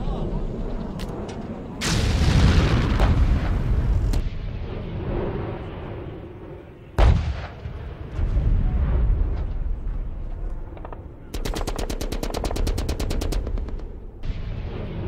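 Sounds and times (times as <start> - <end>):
low rumble: 0.0 - 11.3.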